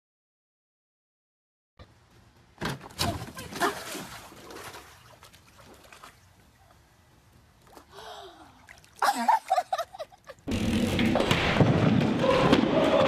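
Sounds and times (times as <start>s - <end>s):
water splashing: 2.9s - 6.4s.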